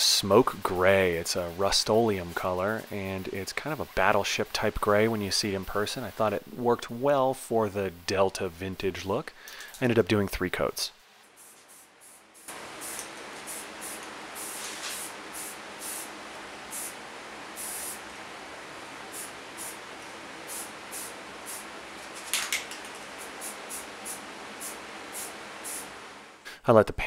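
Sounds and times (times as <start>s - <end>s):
spray paint can hissing: 11.3s - 16.1s, 16.7s - 17.0s, 17.6s - 18.1s, 19.0s - 26.0s.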